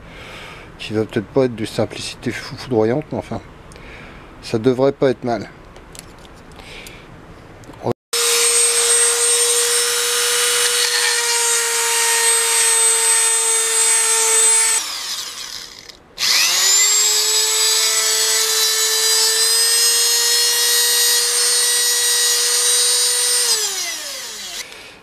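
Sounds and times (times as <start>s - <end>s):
rotary tool whining: 8.2s - 24.8s.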